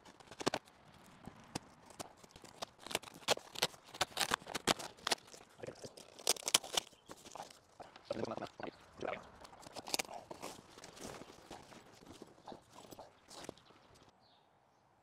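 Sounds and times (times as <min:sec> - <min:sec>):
cardboard box being opened: 0:01.4 - 0:07.6, 0:09.5 - 0:13.6.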